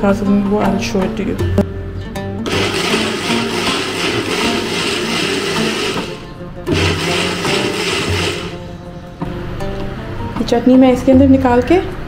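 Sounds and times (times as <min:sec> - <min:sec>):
electric blender grinding: 0:02.4 - 0:08.7.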